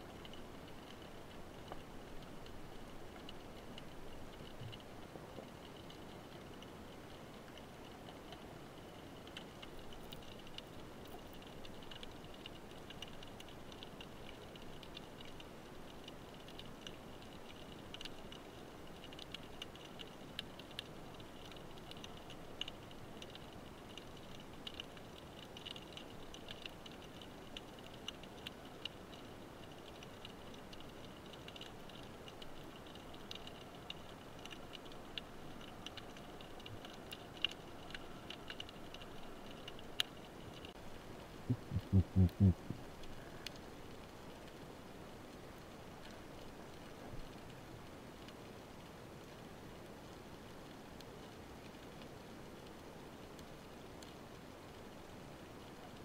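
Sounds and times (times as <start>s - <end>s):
underwater crackle of clicks: 0.0s - 40.8s, 41.5s - 56.0s
faint hiss: 0.0s - 56.0s.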